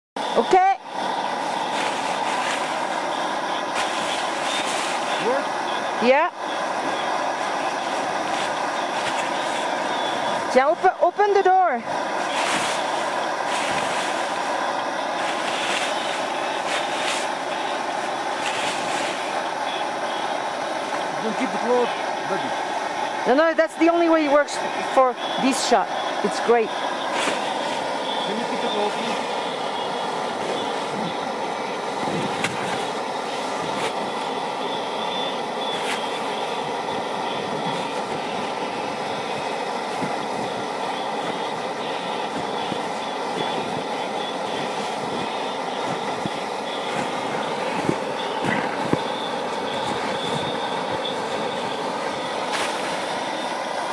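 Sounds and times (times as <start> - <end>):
strong wind blowing: 0.3 - 34.7, 36.0 - 53.9
snow shovel scraping: 1.4 - 5.4, 7.4 - 10.0, 12.0 - 19.8, 26.4 - 31.1, 35.6 - 36.3, 46.8 - 53.1.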